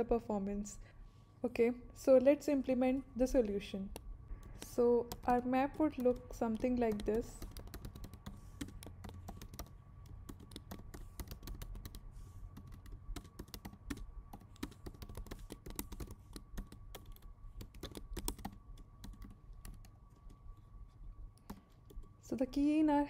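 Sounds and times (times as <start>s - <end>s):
typing on computer keyboard: 3.9s - 20.4s, 21.4s - 22.2s.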